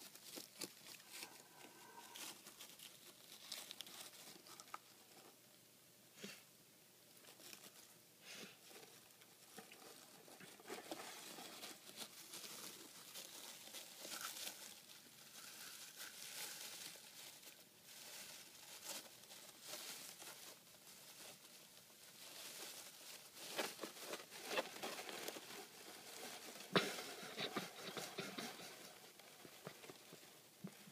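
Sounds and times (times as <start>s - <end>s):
hedgehog rustling wood shavings: 0.0s - 5.3s, 7.1s - 30.9s.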